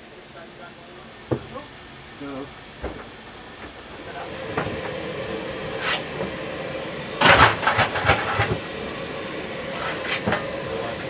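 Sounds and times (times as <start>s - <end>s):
steady hiss and hum: 0.0s - 11.0s
coal shovel scraping and clanking: 5.8s - 6.1s, 7.2s - 8.6s, 9.7s - 10.5s.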